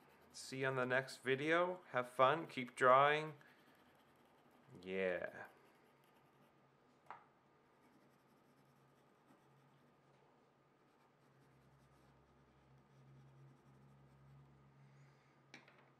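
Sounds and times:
pencil scratching on paper: 0:00.0 - 0:01.4, 0:02.0 - 0:07.0, 0:07.7 - 0:14.7
low steady hum: 0:07.6 - 0:15.5.

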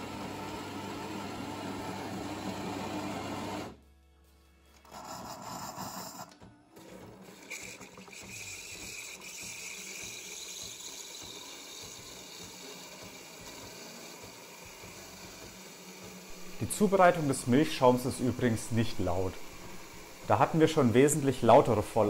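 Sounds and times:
coffee machine buzz: 0:00.0 - 0:03.8, 0:04.7 - 0:22.0
steam hissing into milk: 0:07.8 - 0:22.0.

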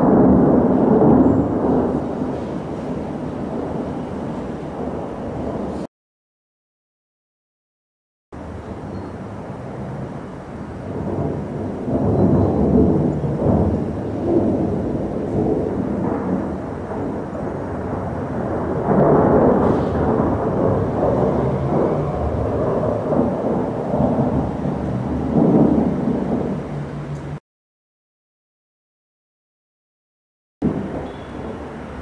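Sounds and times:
thunder rumbling: 0:00.0 - 0:05.9, 0:08.4 - 0:27.4, 0:30.6 - 0:32.0.

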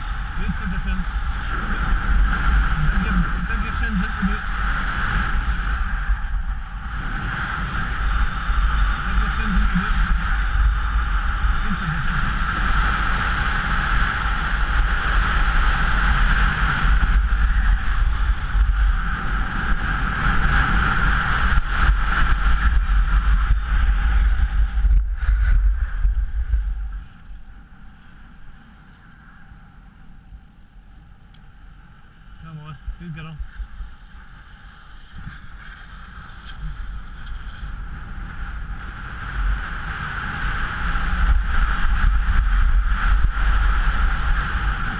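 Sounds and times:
wind rumble on microphone: 0:00.0 - 0:44.9
rushing hiss over snow: 0:31.6 - 0:44.9.

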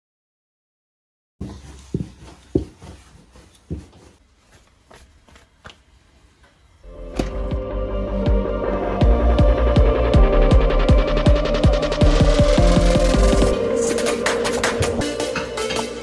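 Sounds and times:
music with throbbing beat: 0:07.4 - 0:16.0.

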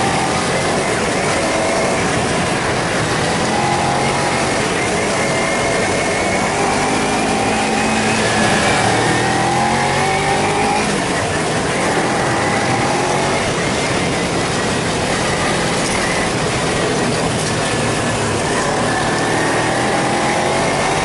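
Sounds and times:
motorcycle engine running: 0:00.0 - 0:21.0.

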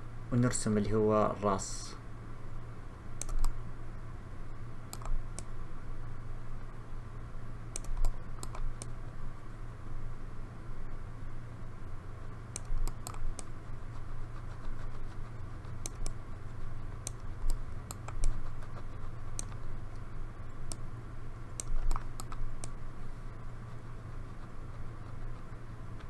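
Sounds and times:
steady low hum: 0:00.0 - 0:26.0
mouse and keyboard clicks: 0:03.2 - 0:03.6, 0:04.9 - 0:05.5, 0:07.7 - 0:09.0, 0:12.6 - 0:13.5, 0:14.4 - 0:16.2, 0:17.0 - 0:20.0, 0:21.6 - 0:22.8.

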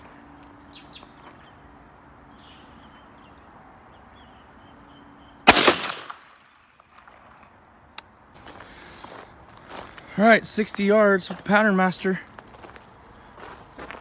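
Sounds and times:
shotgun shot with echo: 0:05.5 - 0:06.5.

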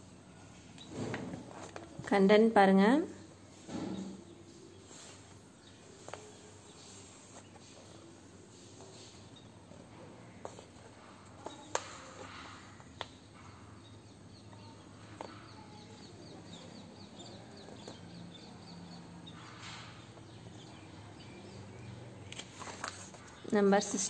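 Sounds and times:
bird chirping: 0:11.0 - 0:22.3
book clicks and taps: 0:11.4 - 0:13.2.

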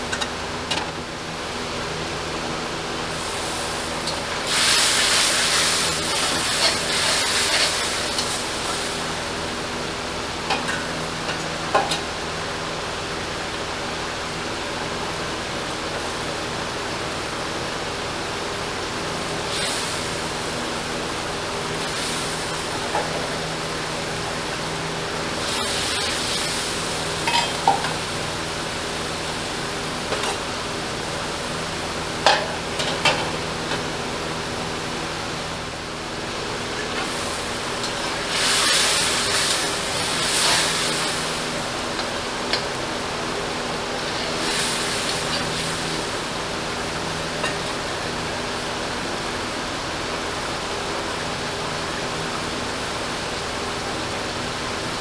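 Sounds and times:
food sizzling in a pan: 0:03.1 - 0:12.2, 0:18.9 - 0:30.4, 0:36.6 - 0:48.2.

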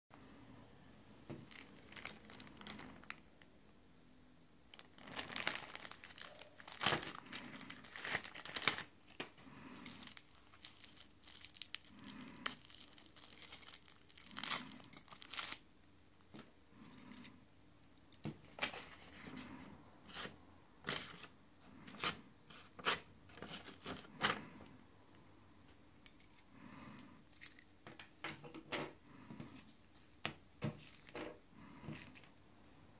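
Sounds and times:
plastic bag crinkling: 0:01.4 - 0:03.3, 0:04.7 - 0:15.6.

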